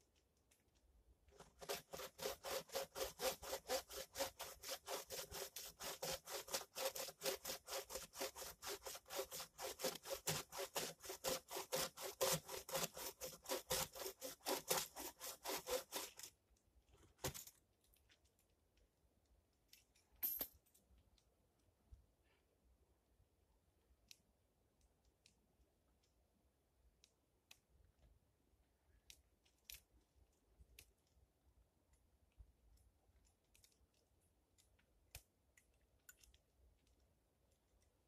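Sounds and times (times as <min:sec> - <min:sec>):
hand saw cutting log: 0:01.3 - 0:16.4.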